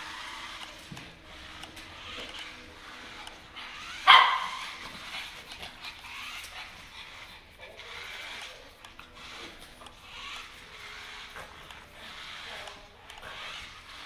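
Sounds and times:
dog barking: 0:04.0 - 0:04.8.

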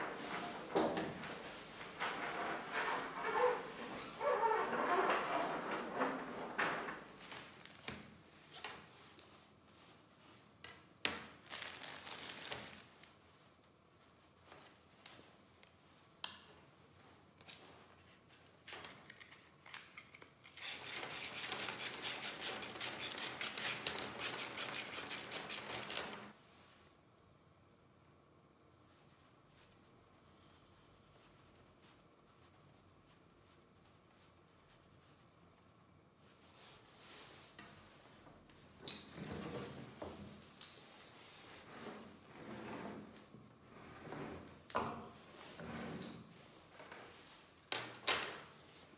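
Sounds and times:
hose scraping on wooden bench: 0:00.0 - 0:07.4
sandpaper rubbing: 0:20.6 - 0:26.1.

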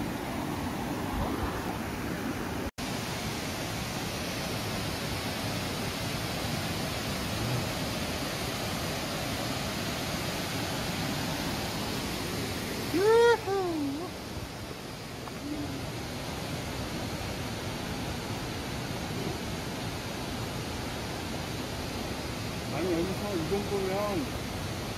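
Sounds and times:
stream water rushing over rocks: 0:00.0 - 0:24.9.

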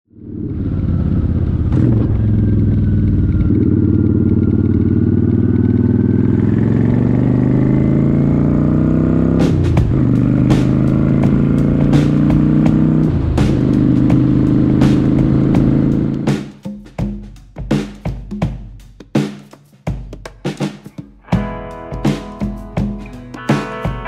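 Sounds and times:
motorcycle engine running: 0:00.1 - 0:16.5.

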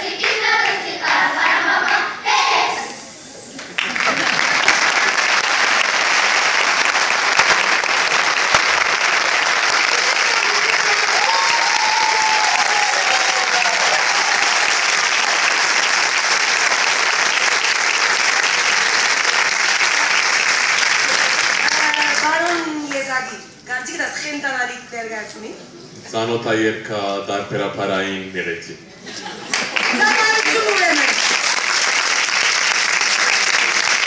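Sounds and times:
audience applauding: 0:03.6 - 0:23.1, 0:29.4 - 0:34.0.

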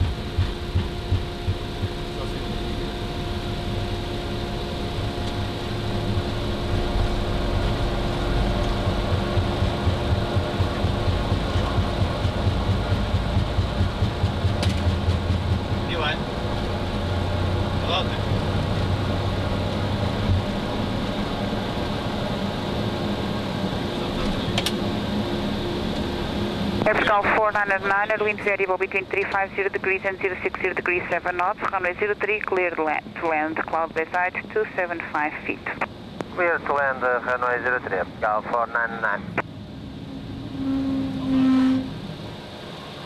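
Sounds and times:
constant hum: 0:00.0 - 0:43.0
jet engine and airflow noise: 0:00.0 - 0:43.0
low runway rumble: 0:00.0 - 0:43.0.

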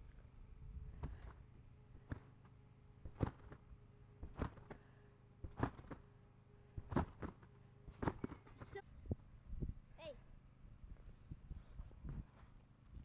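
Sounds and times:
thumps of bouncing on trampoline: 0:00.9 - 0:06.1, 0:06.8 - 0:08.8.

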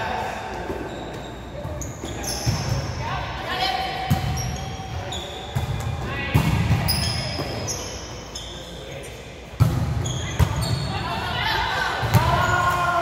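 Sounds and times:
sneakers squeaking on hardwood: 0:00.7 - 0:03.0, 0:04.1 - 0:08.7, 0:09.7 - 0:11.0.

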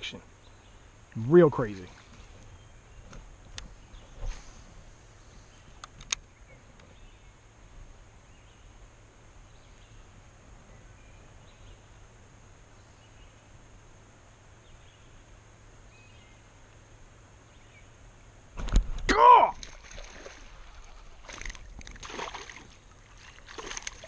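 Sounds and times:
high insect hum: 0:00.0 - 0:24.0
sharp clicks: 0:05.8 - 0:06.2
faint bird chirps: 0:08.2 - 0:12.1, 0:12.7 - 0:13.6, 0:14.5 - 0:16.6.

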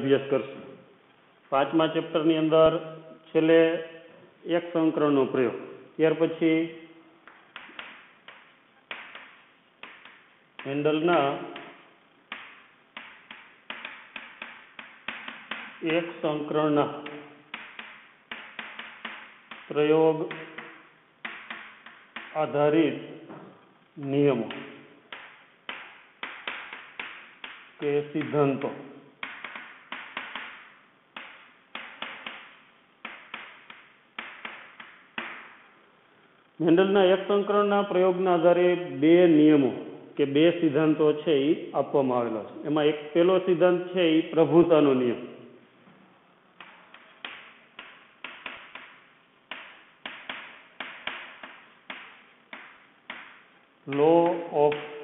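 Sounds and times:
chalk tapping on a blackboard: 0:07.2 - 0:10.8, 0:11.4 - 0:16.2, 0:17.0 - 0:22.4, 0:24.5 - 0:35.6, 0:46.6 - 0:55.0.

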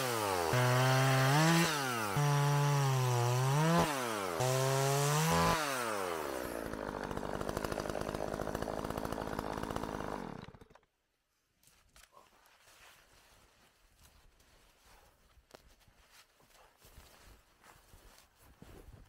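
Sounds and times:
chainsaw running and idling: 0:00.0 - 0:11.0.

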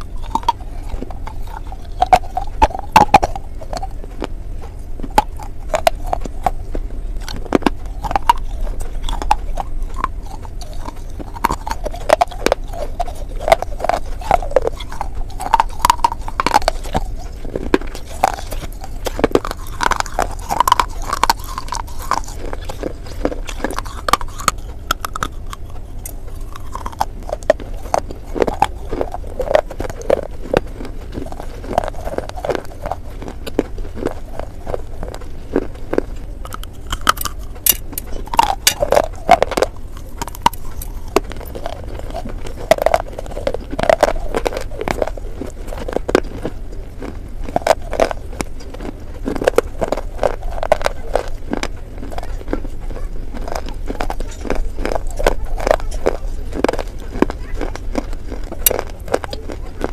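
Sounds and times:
crunching and chewing clay: 0:00.0 - 0:59.9.

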